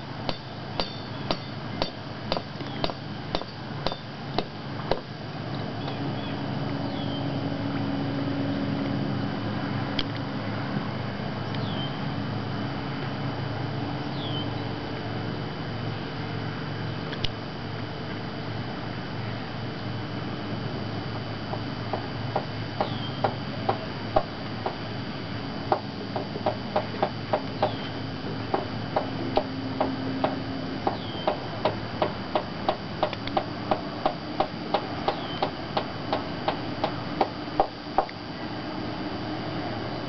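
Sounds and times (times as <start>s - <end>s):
steady low hiss: 0.0s - 40.0s.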